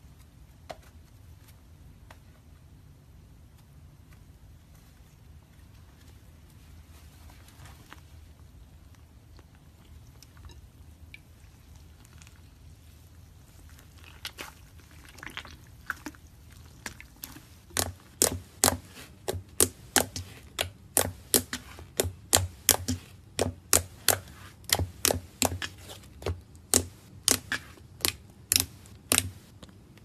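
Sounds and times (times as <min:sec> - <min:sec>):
slime squishing: 0:08.9 - 0:30.0
slime air popping clicks: 0:26.7 - 0:29.5.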